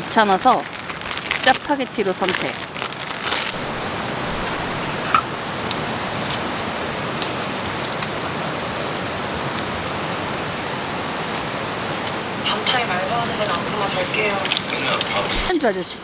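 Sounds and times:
packet crinkling: 0.1s - 3.6s
meat sizzling on a griddle: 6.2s - 12.2s.

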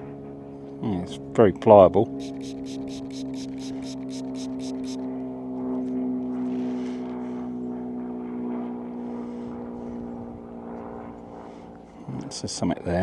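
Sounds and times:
engine drone: 0.0s - 13.0s
metal detector pinpointer beeping: 2.2s - 5.0s.

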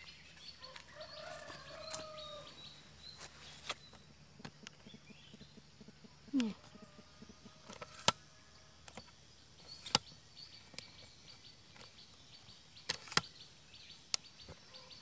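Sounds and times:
rural outdoor ambience: 0.0s - 15.0s
sharp clicks: 7.6s - 8.2s, 8.8s - 11.0s, 12.8s - 13.3s.

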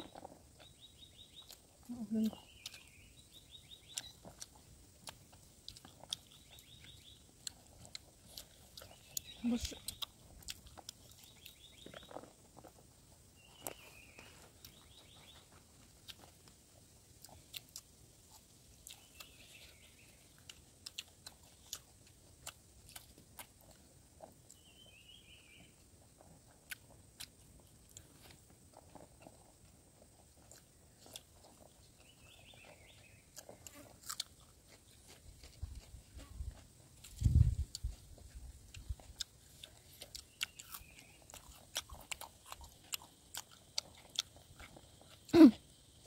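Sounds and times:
bird chirping: 0.0s - 4.6s, 6.1s - 12.4s, 13.3s - 15.6s, 18.8s - 20.5s, 24.4s - 25.8s, 30.8s - 33.7s, 39.5s - 45.1s
close-up chewing and mouth clicks: 0.0s - 46.0s.

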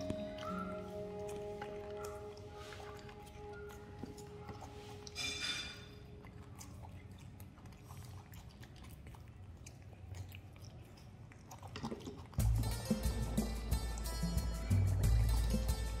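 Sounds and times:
monkeys chewing crunches: 0.0s - 16.0s
high-pitched squeak: 5.2s - 5.9s.

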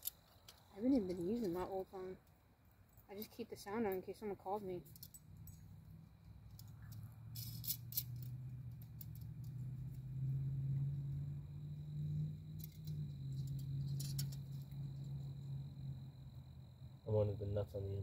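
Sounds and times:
metallic clicks and rattles: 0.0s - 1.5s, 4.8s - 5.8s, 6.4s - 10.0s, 12.5s - 14.8s
steady low hum: 0.0s - 18.0s.

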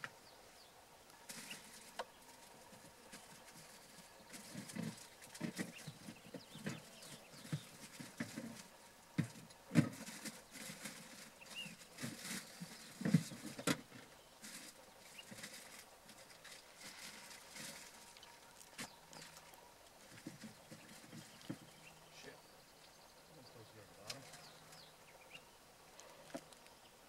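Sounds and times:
footsteps on sand and twigs: 1.3s - 13.7s, 14.4s - 21.9s.

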